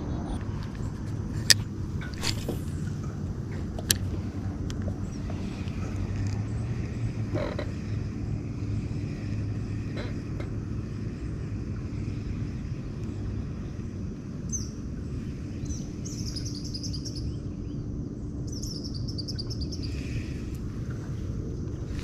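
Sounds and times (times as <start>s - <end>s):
steady low rumble: 0.0s - 22.0s
bird chirping: 14.5s - 14.8s, 15.5s - 20.1s.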